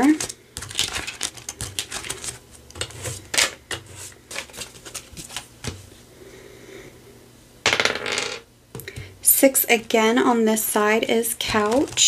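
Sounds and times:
paper bills and pages rustling: 0.0 - 5.9, 11.4 - 12.0.

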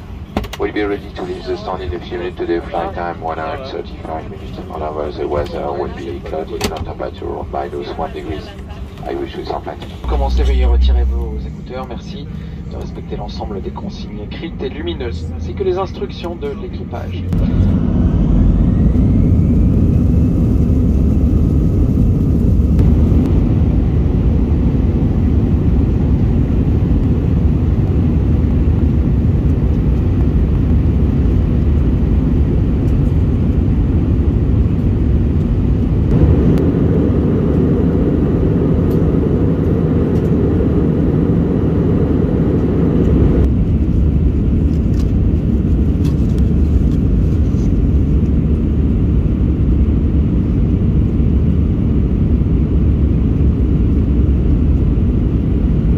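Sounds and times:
jet engine rumble: 0.0 - 55.9
faint rising whine: 1.0 - 25.8, 35.3 - 43.5.

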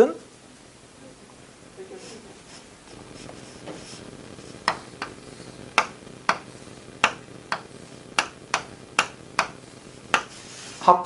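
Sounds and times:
chalk tapping on chalkboard: 3.2 - 5.2, 5.8 - 10.6.

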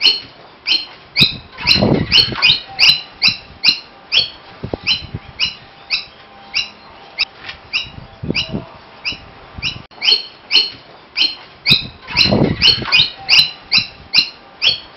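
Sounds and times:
bird giving sharp calls: 0.0 - 6.9, 7.7 - 14.9.

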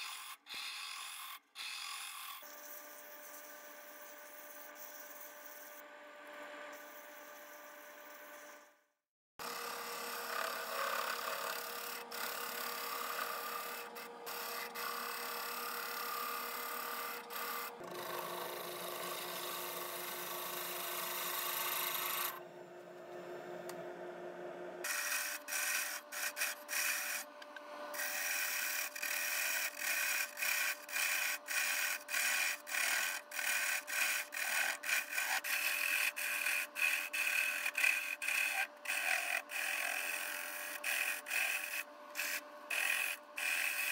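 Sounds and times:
gouge scraping wood: 0.0 - 3.4, 10.4 - 19.6, 24.8 - 27.3, 28.0 - 43.9
lathe motor hum: 9.4 - 43.9
sanding stick rubbing wood: 24.9 - 27.3, 28.0 - 43.9.

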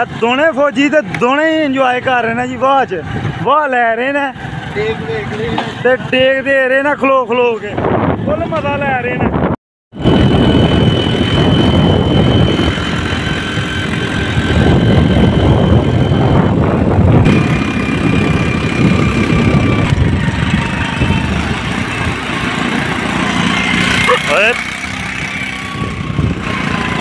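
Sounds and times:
motorcycle engine running: 0.0 - 6.7, 10.0 - 27.0
wind rushing over microphone: 2.9 - 3.6, 7.3 - 27.0.

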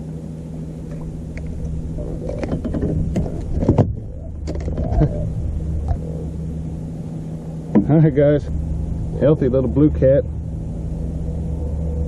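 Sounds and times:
boat motor humming: 0.0 - 12.0
clicks and knocks handling fish: 0.9 - 5.2.

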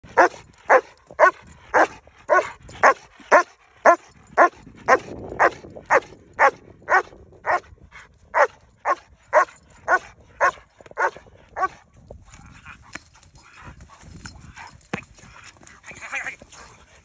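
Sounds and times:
dog barking: 0.2 - 7.7, 8.3 - 11.8.

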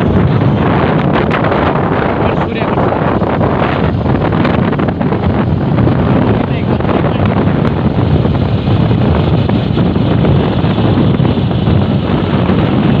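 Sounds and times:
road and engine noise: 0.0 - 13.0
wind rushing over microphone: 0.0 - 13.0.

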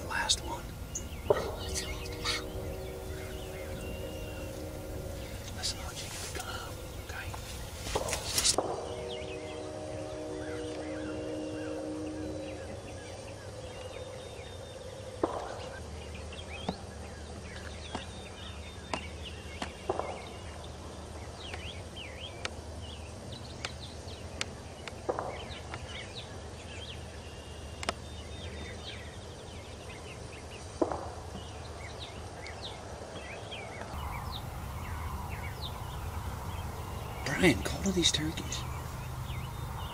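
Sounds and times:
turkey gobbling: 0.0 - 6.9
songbird chirps: 0.0 - 39.9.

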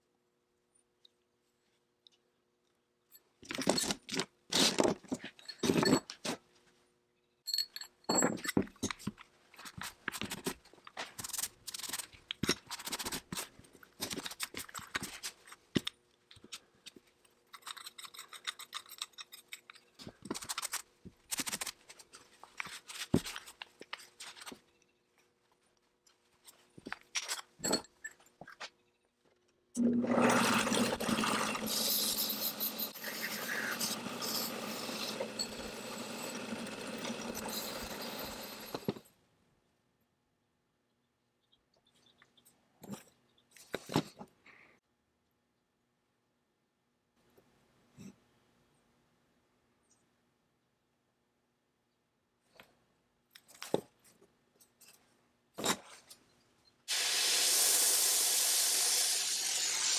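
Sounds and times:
metal parts clinking: 17.5 - 20.8
polishing wheel motor running: 30.1 - 38.8.

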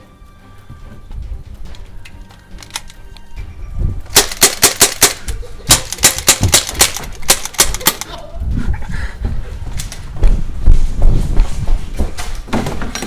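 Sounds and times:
airsoft pistols firing rapidly: 4.1 - 8.1.

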